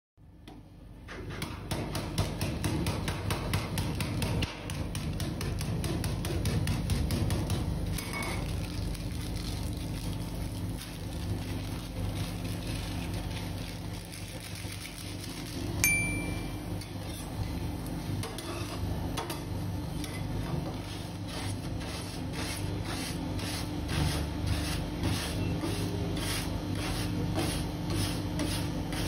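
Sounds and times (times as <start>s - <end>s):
cookie packet crackling: 8.4s - 15.8s
steady low hum: 8.7s - 29.0s.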